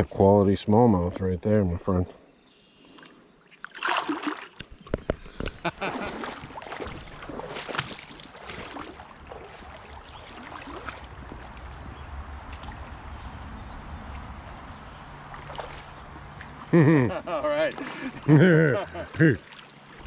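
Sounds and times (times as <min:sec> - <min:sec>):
river water flowing: 0:03.0 - 0:20.0.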